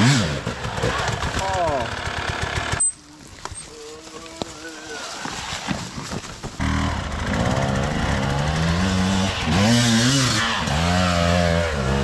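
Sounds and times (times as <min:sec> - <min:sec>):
motorcycle engine revving: 0:00.0 - 0:03.0, 0:06.5 - 0:12.0.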